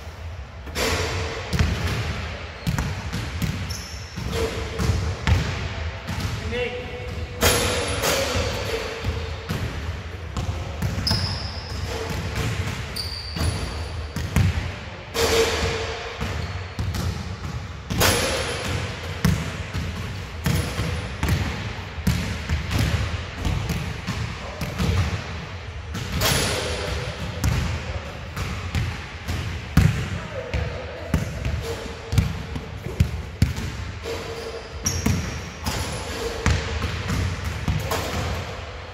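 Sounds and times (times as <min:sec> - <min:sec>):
basketballs bouncing: 0:00.7 - 0:38.5
shoes squeaking on floor: 0:03.7 - 0:04.2, 0:11.0 - 0:11.7, 0:12.9 - 0:13.9, 0:34.3 - 0:35.4.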